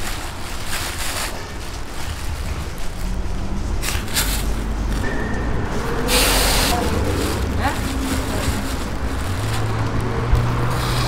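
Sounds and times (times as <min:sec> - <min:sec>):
plastic bags rustling: 0:00.0 - 0:11.0
low rumble: 0:01.4 - 0:10.8
steam hissing: 0:05.7 - 0:09.1.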